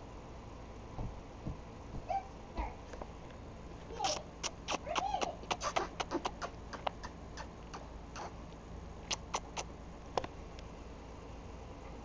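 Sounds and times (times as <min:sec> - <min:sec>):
lip smacking kisses: 0:04.0 - 0:08.4, 0:09.0 - 0:09.7.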